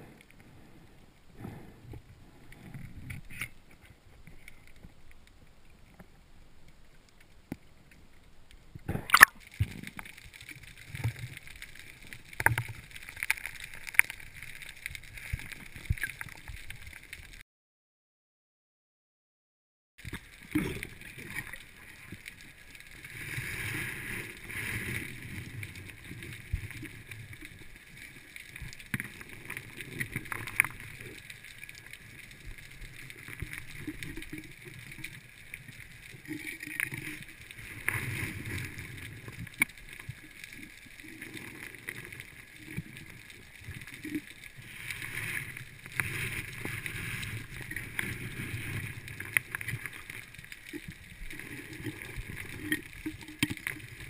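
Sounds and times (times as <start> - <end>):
bubbling: 8.8 - 17.4, 20.0 - 54.0
stones clicking: 9.0 - 16.7.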